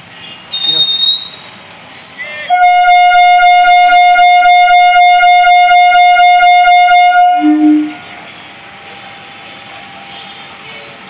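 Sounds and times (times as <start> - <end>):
train horn long blast: 2.3 - 8.1.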